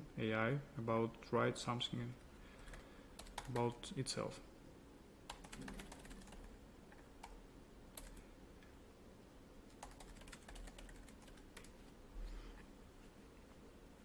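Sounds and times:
typing on computer keyboard: 2.6s - 3.7s, 5.3s - 7.4s, 8.0s - 8.2s, 9.7s - 11.8s.

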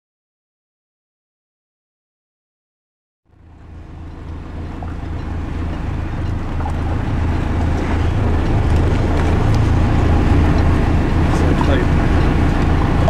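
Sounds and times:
low engine hum: 3.3s - 13.0s
water noise: 3.3s - 13.0s
wind: 3.3s - 13.0s.

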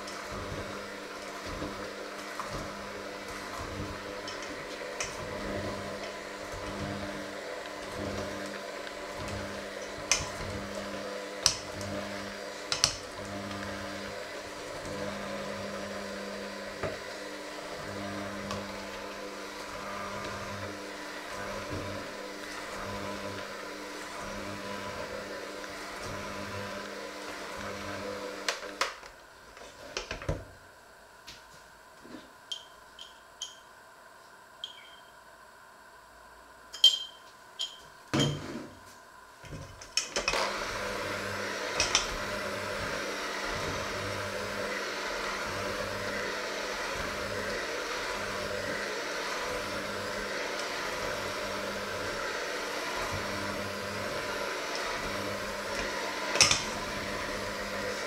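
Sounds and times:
electric hand mixer running: 0.0s - 31.0s, 38.1s - 58.0s
mixer beaters clinking against bowl: 32.5s - 33.7s, 36.7s - 38.4s.

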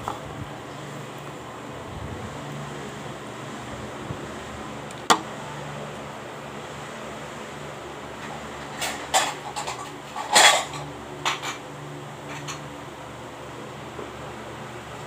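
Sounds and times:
dishes and cutlery clattering: 8.6s - 11.6s, 12.2s - 12.7s.

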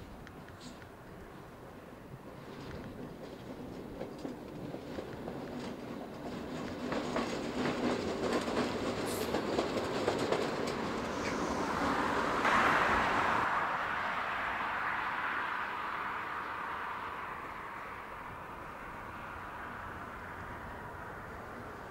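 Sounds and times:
wheels clicking over rail joints: 0.0s - 11.5s
diesel locomotive engine: 0.0s - 21.9s.

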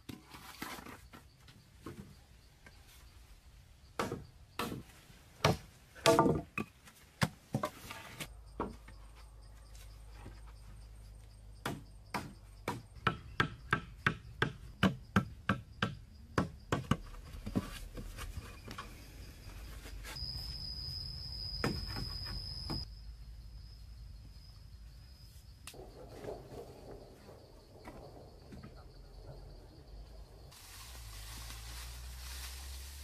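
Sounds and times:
high insect buzz: 19.2s - 25.6s.

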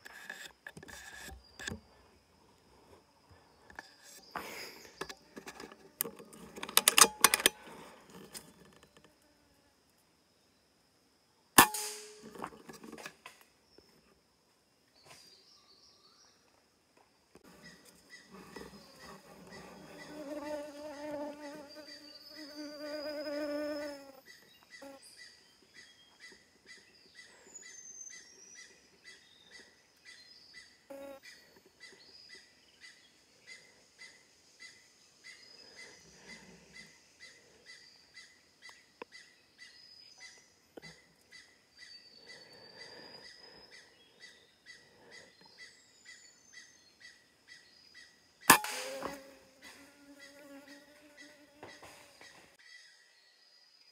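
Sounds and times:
air rifle shot: 11.6s - 12.2s, 48.5s - 49.1s
wavering insect call: 17.4s - 53.1s.

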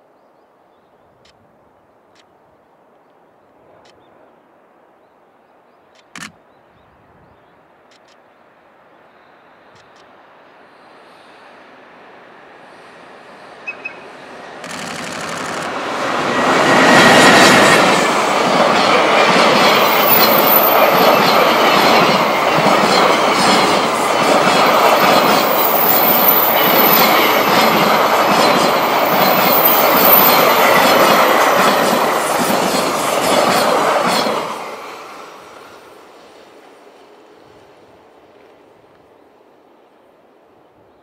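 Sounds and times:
freight train rumbling past: 8.5s - 41.0s
wheels clacking over rails: 13.7s - 34.8s.

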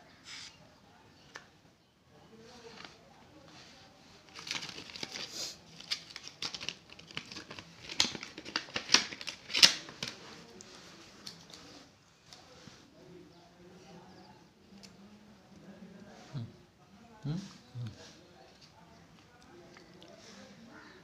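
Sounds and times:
plastic packet crinkling: 4.3s - 10.4s.

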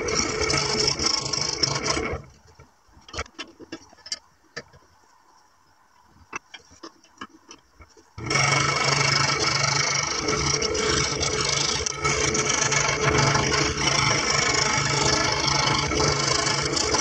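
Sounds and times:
scroll saw cutting plywood: 0.0s - 2.3s, 8.2s - 17.0s.

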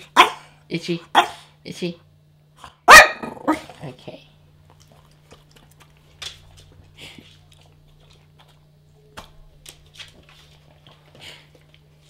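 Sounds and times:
dog claws clicking on wooden floor: 4.8s - 8.6s.

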